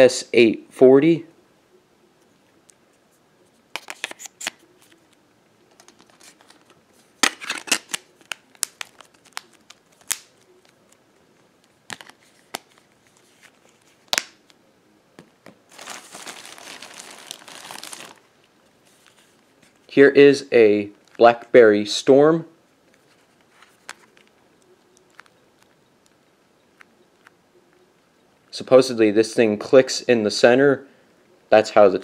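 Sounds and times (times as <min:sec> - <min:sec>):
plastic bag crinkling: 0:05.7 - 0:10.9, 0:15.7 - 0:18.3.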